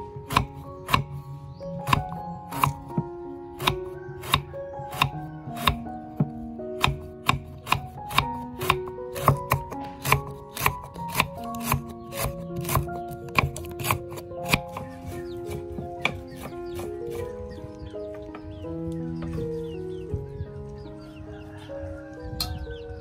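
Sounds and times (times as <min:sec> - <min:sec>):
knife chopping on wooden block: 0:00.2 - 0:01.2, 0:01.8 - 0:03.0, 0:03.6 - 0:17.3.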